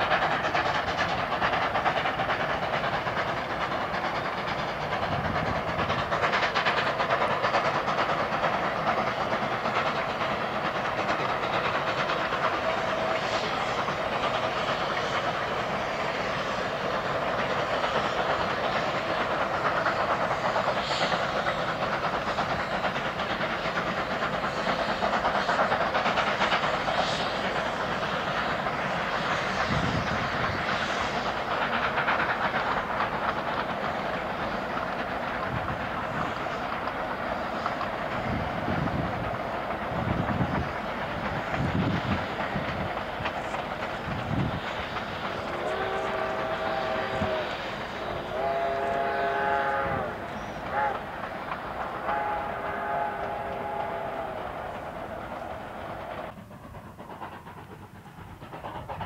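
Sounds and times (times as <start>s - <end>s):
steam hiss: 0.0s - 59.0s
steam locomotive working hard: 0.0s - 59.0s.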